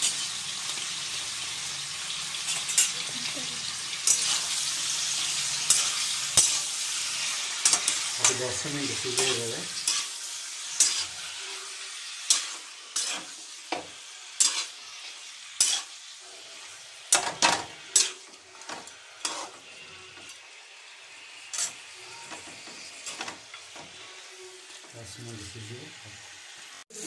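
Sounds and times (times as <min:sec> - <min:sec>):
frying sizzle: 0:00.0 - 0:27.0
spatula scraping metal pan: 0:04.0 - 0:14.8, 0:15.6 - 0:20.4, 0:21.5 - 0:24.9.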